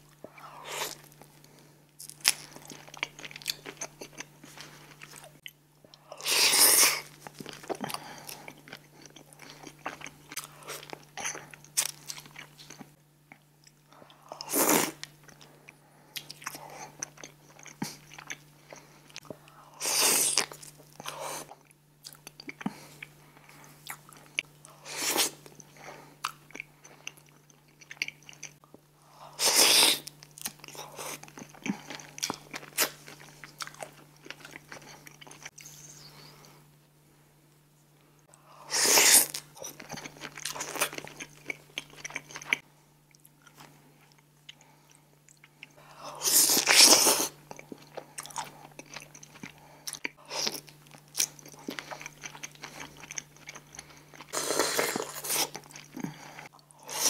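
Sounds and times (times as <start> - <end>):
person chewing: 0.1 - 36.5, 38.2 - 57.0.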